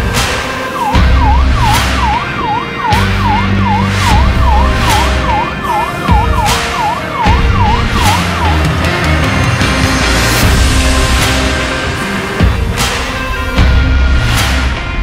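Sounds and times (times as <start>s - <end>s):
bass-heavy background music: 0.0s - 15.0s
fire truck siren yelping: 0.4s - 9.1s.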